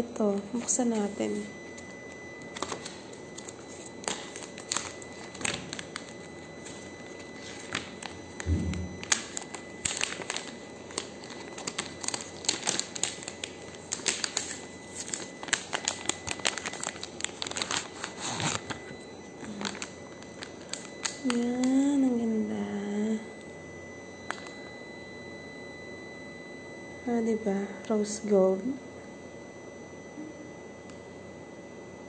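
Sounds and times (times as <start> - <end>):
plastic packaging crinkling: 0.2 - 22.4, 24.2 - 24.6.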